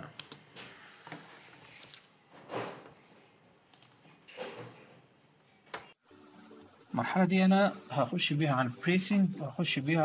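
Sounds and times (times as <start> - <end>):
computer clicks: 0.1 - 0.4, 3.7 - 4.0.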